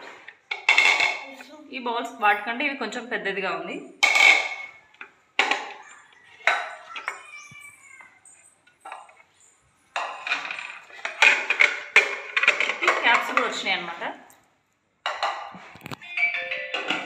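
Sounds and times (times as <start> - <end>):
plastic dishes clacking on stone floor: 0.0 - 1.4, 4.0 - 14.2, 15.0 - 17.0.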